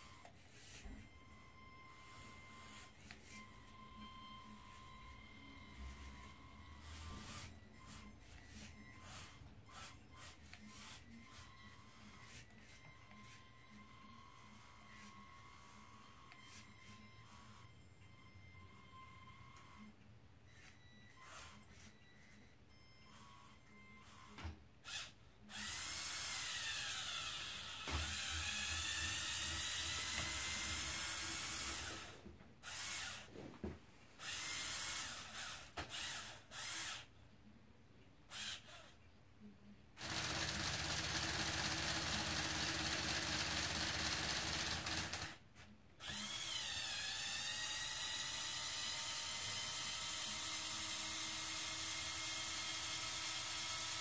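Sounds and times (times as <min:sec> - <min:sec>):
small electric motors whining: 0:00.0 - 0:19.9, 0:20.5 - 0:33.3, 0:34.2 - 0:37.1, 0:38.3 - 0:39.0, 0:40.0 - 0:45.4, 0:46.0 - 0:54.0.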